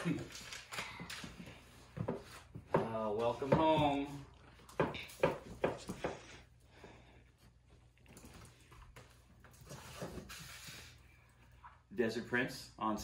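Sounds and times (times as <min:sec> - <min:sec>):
cardboard and paper rustling: 0:00.0 - 0:02.6.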